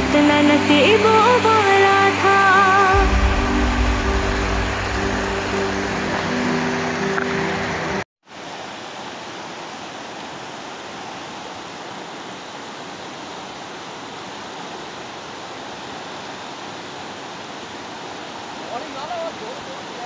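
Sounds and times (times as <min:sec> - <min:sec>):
song: 0:00.0 - 0:08.0
river rushing over rocks: 0:00.0 - 0:20.0.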